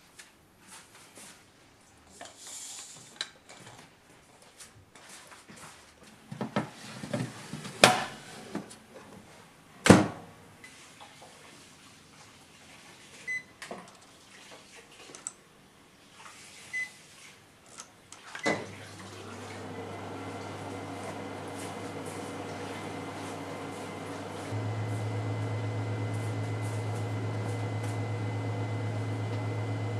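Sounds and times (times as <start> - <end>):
oven humming: 18.7 - 29.9.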